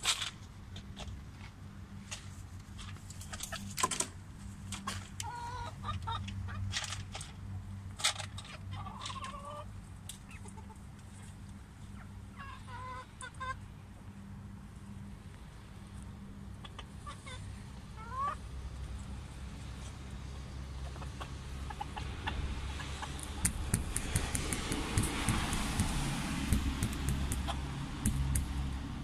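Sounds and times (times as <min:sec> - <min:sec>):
steady low hum: 0:13.1 - 0:29.0
pheasants calling: 0:16.5 - 0:18.5, 0:20.7 - 0:29.0.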